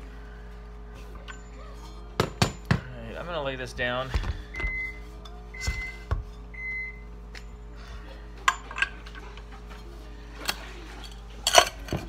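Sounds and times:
metal tools clinking on metal: 10.4s - 12.0s.

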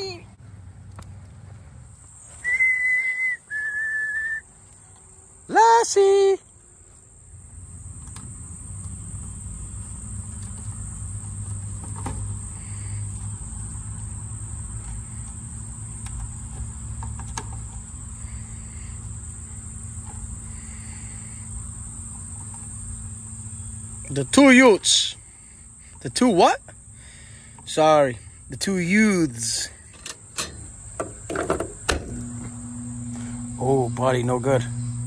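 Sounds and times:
low steady hum: 0.0s - 35.0s
high-pitched insect chirring: 12.4s - 35.0s.

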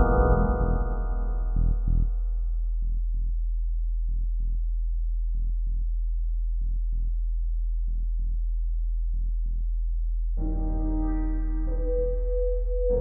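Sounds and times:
fuller synth chord: 0.0s - 2.2s, 10.4s - 13.0s
deep electronic drone: 0.0s - 2.6s, 10.4s - 13.0s.

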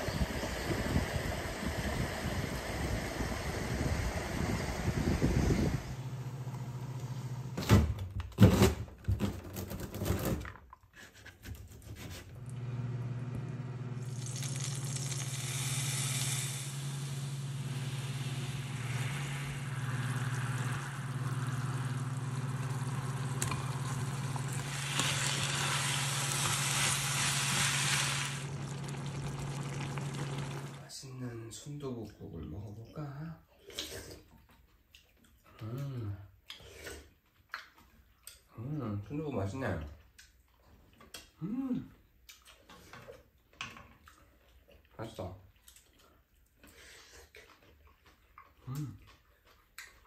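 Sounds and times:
food sizzling in a frying pan: 14.0s - 30.8s
steady low hum: 15.0s - 24.8s.

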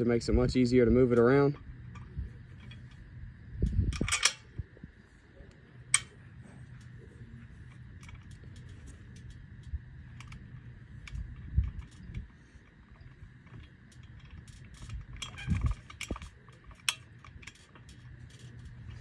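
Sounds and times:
hand-cranked winch clicking and clanking: 7.7s - 19.0s.

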